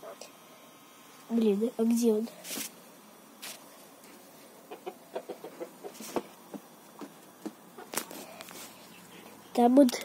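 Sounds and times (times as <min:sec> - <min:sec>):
hen clucking: 0:04.6 - 0:06.3, 0:07.7 - 0:08.0.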